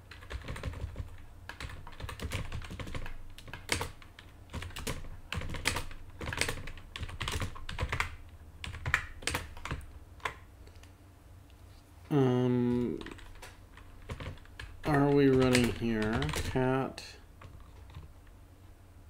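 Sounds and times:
typing on computer keyboard: 0.0s - 10.4s, 12.8s - 16.7s, 17.4s - 18.1s.

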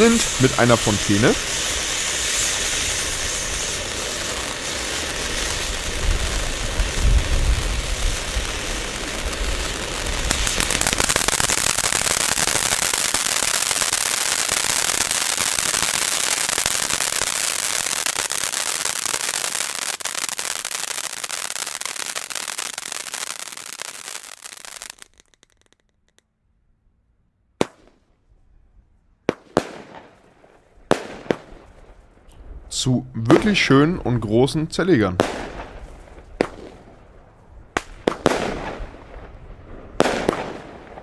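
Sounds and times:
firework fountain hissing: 0.0s - 25.8s
firework bangs: 0.0s - 26.2s, 27.6s - 28.1s, 29.3s - 32.0s, 35.2s - 41.0s.

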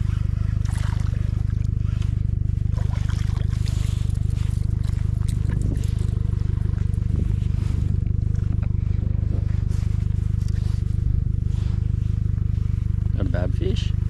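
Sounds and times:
outboard motor idling: 0.0s - 14.0s.

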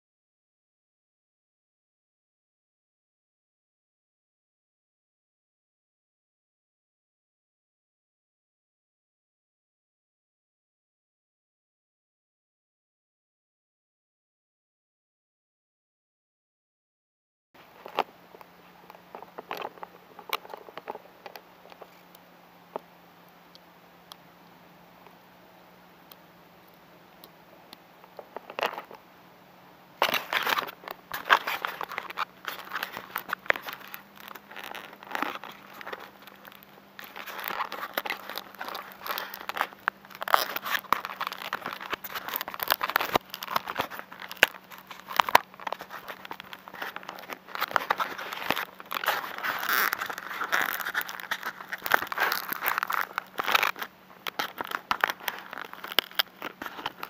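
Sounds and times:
faint low hum: 17.6s - 57.0s
grass crackling and rustling: 29.9s - 57.0s.

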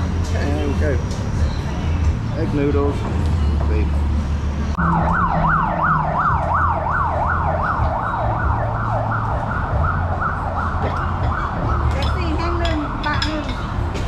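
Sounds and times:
siren yelping: 4.8s - 12.0s.

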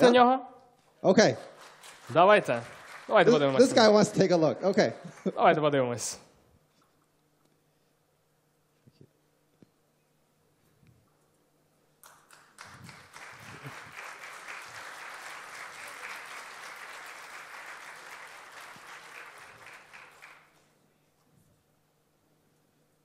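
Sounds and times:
audience applauding: 1.2s - 4.3s, 12.0s - 20.7s.

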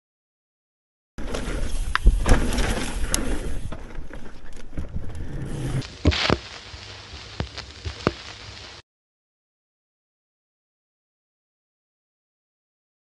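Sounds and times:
wind and tyres rumbling: 1.2s - 6.0s
quiet hiss: 5.6s - 8.8s.

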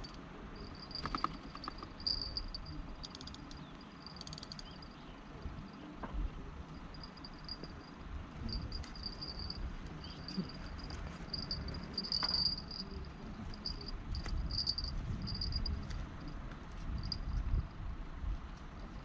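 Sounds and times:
low rumble: 5.4s - 16.3s
insect trilling: 8.5s - 13.0s.

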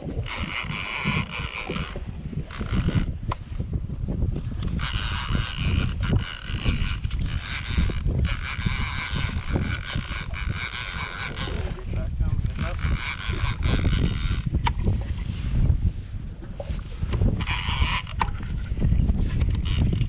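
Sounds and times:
fishing reel gears whirring: 0.0s - 15.6s, 16.6s - 20.0s.

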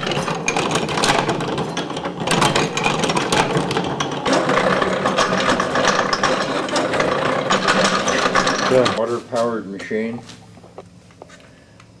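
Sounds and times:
washing machine gears clattering: 0.0s - 9.0s.

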